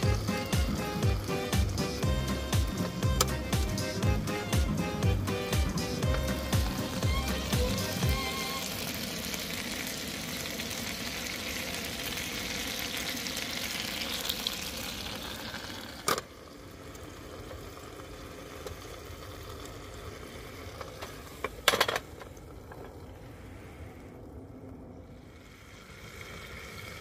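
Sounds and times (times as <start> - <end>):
meat sizzling in a pan: 0.0 - 16.0.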